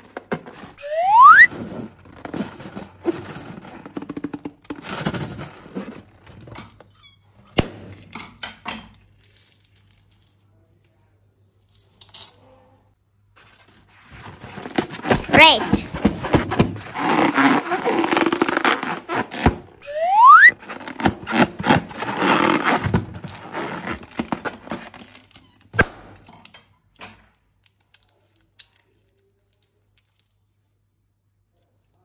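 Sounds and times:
balloon rubber squeak: 0.8s - 1.5s, 15.0s - 24.8s.

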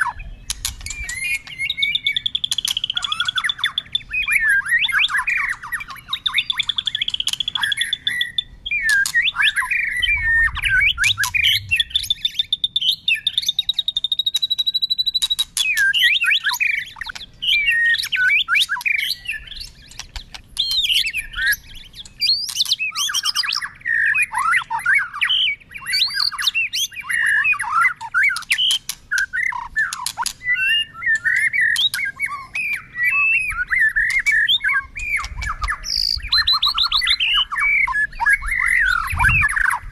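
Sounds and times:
songbird singing trills and whistles: 0.0s - 39.9s
sharp bird clicking notes: 0.4s - 3.8s, 6.5s - 8.2s, 8.8s - 9.8s, 10.7s - 12.3s, 13.6s - 16.0s, 17.0s - 17.4s, 18.6s - 23.6s, 28.2s - 32.1s, 33.9s - 37.0s.

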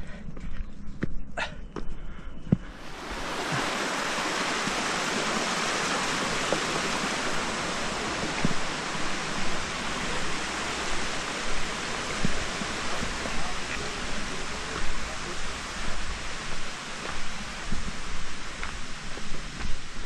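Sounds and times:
stream rushing over rocks: 2.7s - 20.0s
faint footfalls on rocky trail: 8.1s - 9.7s, 11.1s - 14.0s, 15.9s - 19.9s.

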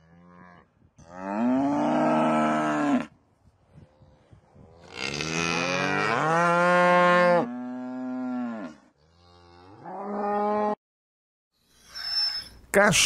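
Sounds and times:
cattle mooing: 0.0s - 3.1s, 4.8s - 10.8s.

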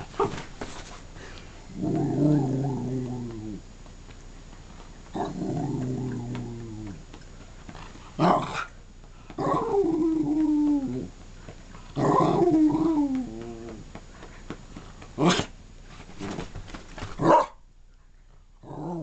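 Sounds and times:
dog grumbling howls: 1.7s - 3.6s, 5.2s - 7.0s, 9.4s - 11.1s, 12.0s - 13.9s
dog barking: 17.2s - 17.6s.

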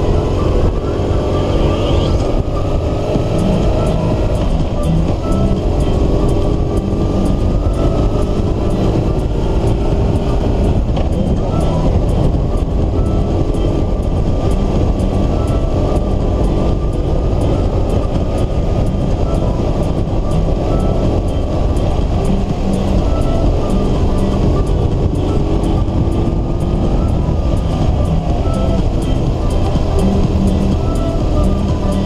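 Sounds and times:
motorcycle engine: 0.0s - 32.0s
wind noise: 0.0s - 32.0s.

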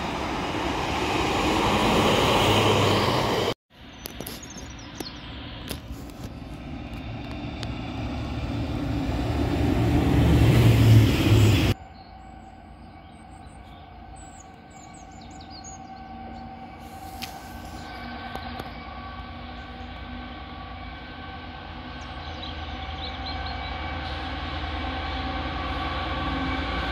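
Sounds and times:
distant diesel locomotive hum: 0.0s - 26.9s
passenger train rumble: 0.0s - 26.9s
birds chirping: 1.6s - 7.7s, 10.8s - 24.4s.

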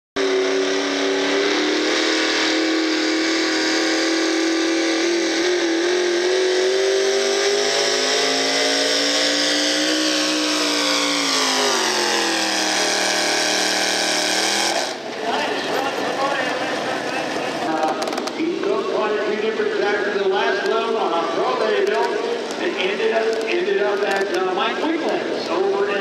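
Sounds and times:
engine running at high revs: 0.2s - 18.8s.

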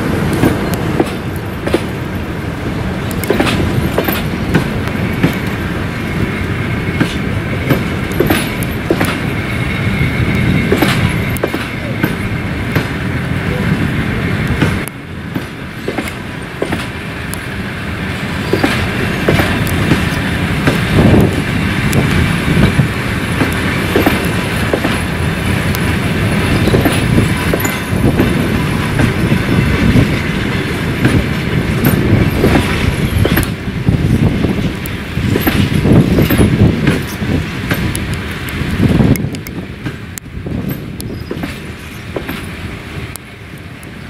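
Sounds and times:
steel wheels rumbling on rails: 0.0s - 44.0s
wheels clattering over rail joints: 3.0s - 6.3s, 6.9s - 13.1s, 18.4s - 43.3s.

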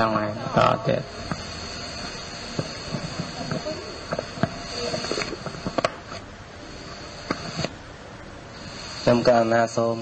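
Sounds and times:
faint background voices: 0.0s - 6.2s
recording hiss: 0.0s - 10.0s.

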